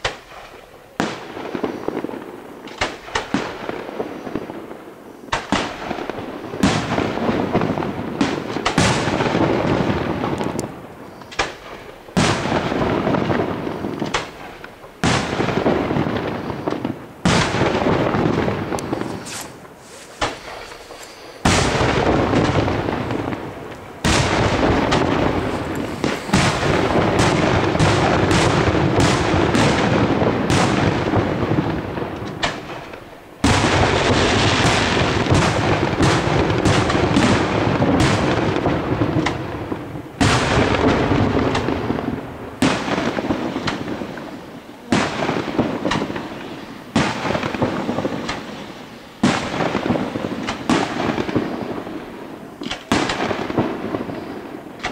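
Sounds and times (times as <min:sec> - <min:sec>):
fireworks booming and crackling: 0:00.0 - 0:54.9.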